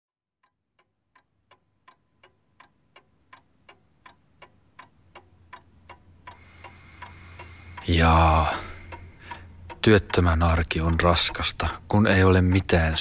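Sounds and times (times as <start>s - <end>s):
clock ticking: 0.4s - 13.0s.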